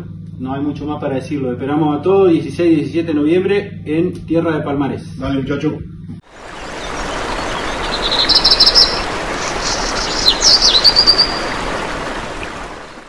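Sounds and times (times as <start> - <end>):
steady rushing noise: 6.3 - 13.0
small birds chirping: 6.4 - 12.9.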